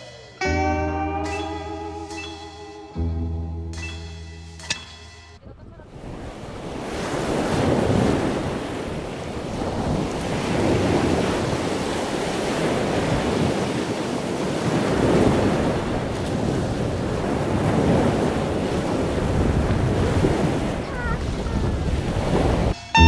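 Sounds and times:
wind buffeting microphone: 5.4s - 22.8s
sea surf breaking: 5.8s - 22.8s.

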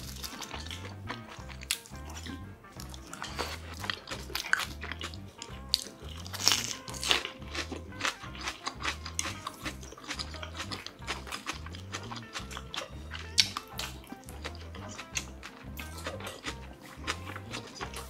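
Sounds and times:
background music with bass line: 0.0s - 18.0s
biting and chewing food: 0.0s - 18.0s
wet mouth clicks: 8.6s - 18.0s.

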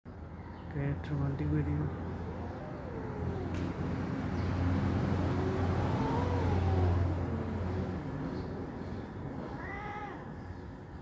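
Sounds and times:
cat yowling: 2.2s - 8.2s, 9.3s - 10.6s.

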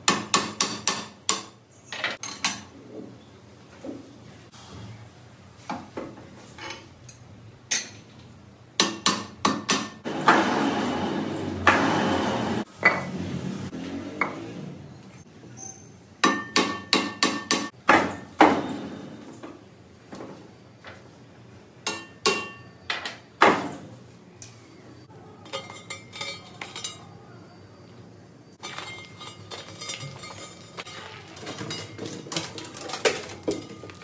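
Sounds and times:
hammer striking metal: 16.2s - 18.6s
metal clinking: 25.4s - 27.1s, 28.6s - 34.0s.

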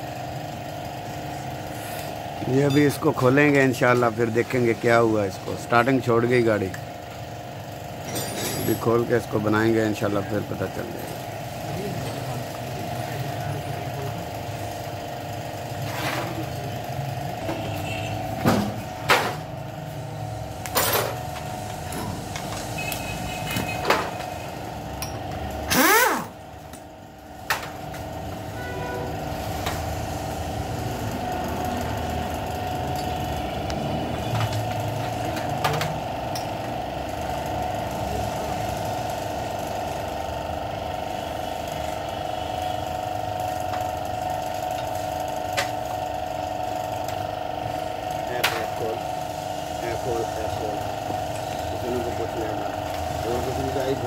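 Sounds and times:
workshop hum: 0.0s - 54.0s
metal tools knocking and clinking: 8.0s - 8.9s.

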